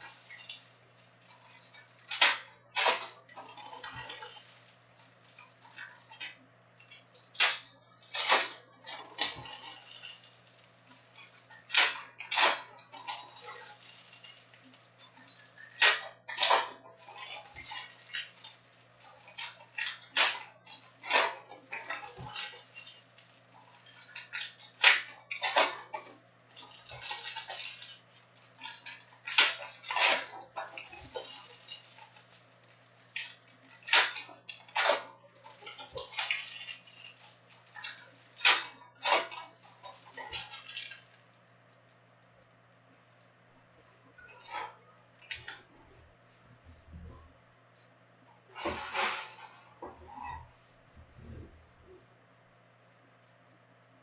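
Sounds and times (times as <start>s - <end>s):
low hum: 49.7s - 53.9s.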